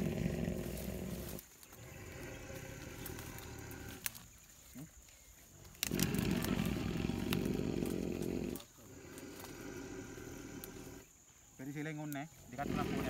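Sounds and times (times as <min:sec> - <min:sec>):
elephant rasping breath: 0:05.8 - 0:11.1.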